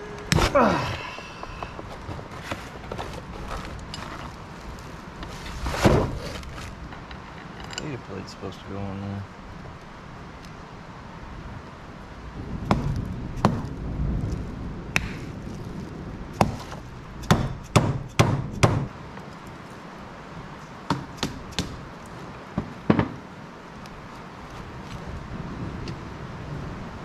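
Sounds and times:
metal tools clinking on metal: 6.9 - 8.1.

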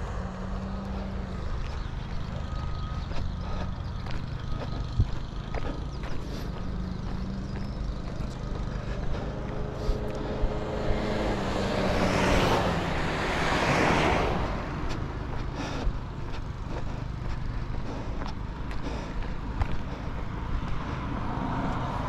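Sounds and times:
car passing by: 6.3 - 15.2, 20.3 - 22.0
steady low rumble: 14.3 - 22.0.

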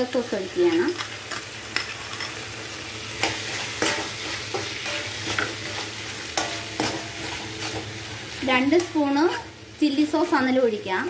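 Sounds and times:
vegetables sizzling in a pan: 0.0 - 11.0
spatula scraping and knocking pan: 3.2 - 8.0.

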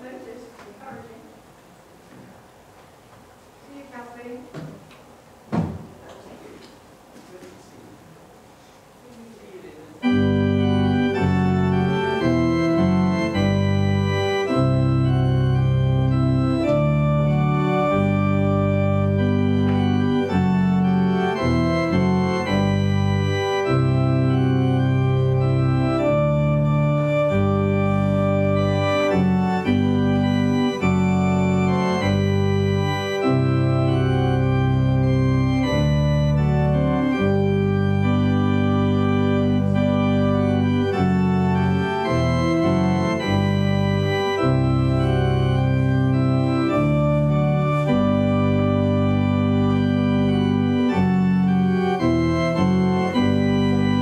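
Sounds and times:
organ music: 9.9 - 54.0.

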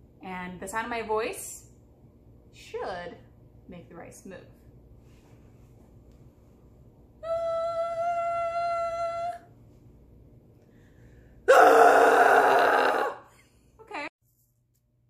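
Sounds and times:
woman singing high note: 7.2 - 9.5
woman's loud ahh: 11.5 - 13.3.

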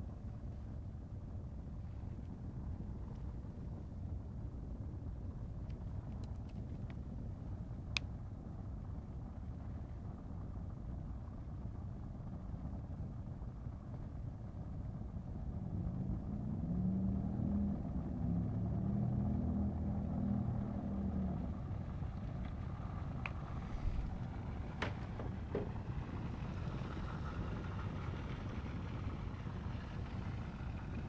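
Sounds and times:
city traffic rumble: 0.0 - 31.0
vehicle engine hum: 0.0 - 31.0.

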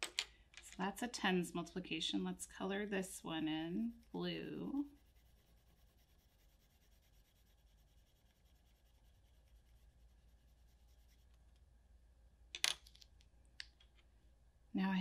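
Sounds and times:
pencil scratching on paper: 2.9 - 11.4.

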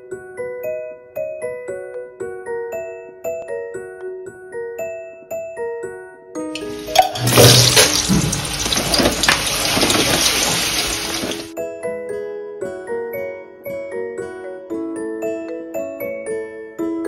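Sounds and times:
food sizzling in hot oil: 6.6 - 11.6.

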